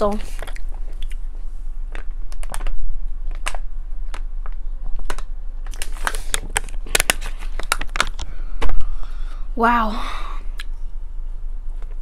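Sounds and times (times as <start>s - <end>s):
plastic bottle crackling: 1.9s - 8.8s.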